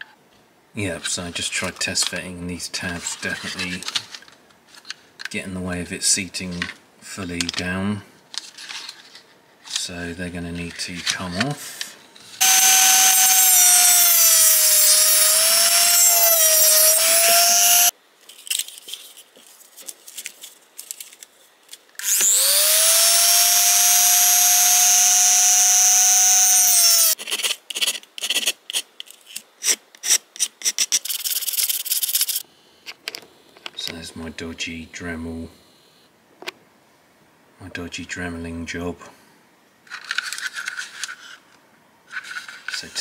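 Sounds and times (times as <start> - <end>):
light scrapes and clicks: 1.0 - 5.4, 39.9 - 43.0
rotary tool whining: 12.4 - 17.9, 22.0 - 27.2.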